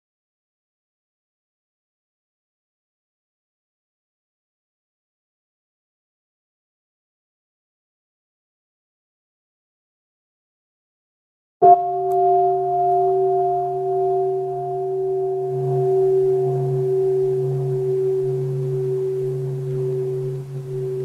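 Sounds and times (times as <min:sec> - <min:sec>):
bowl bell ringing: 0:11.6 - 0:21.0.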